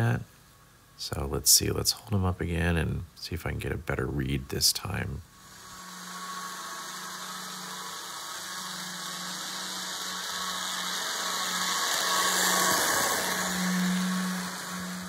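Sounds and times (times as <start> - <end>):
model train electric motor hum: 5.2 - 15.0
wheels rushing on rail: 5.3 - 15.0.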